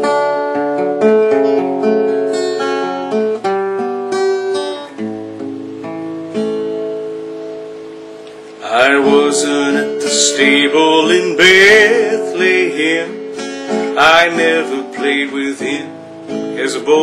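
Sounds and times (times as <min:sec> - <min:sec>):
acoustic guitar chords: 0:00.0 - 0:17.0.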